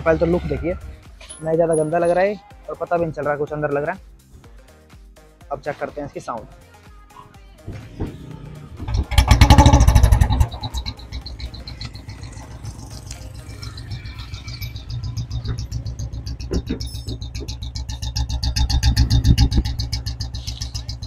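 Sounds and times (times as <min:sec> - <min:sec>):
motorcycle engine starting and idling: 0:07.7 - 0:21.0
exhaust whistle: 0:09.4 - 0:12.6.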